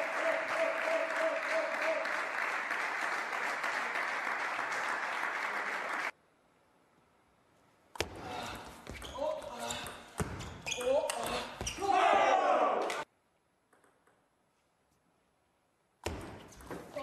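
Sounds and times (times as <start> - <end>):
audience applause: 0.0 - 6.1.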